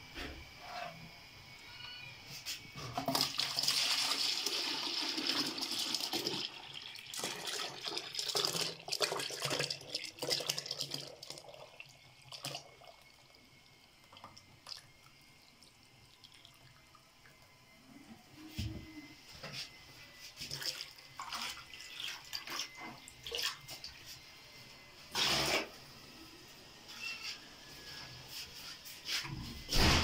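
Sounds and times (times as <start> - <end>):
liquid pouring into plastic bucket: 3.0 - 13.3, 14.1 - 14.9, 20.4 - 24.0.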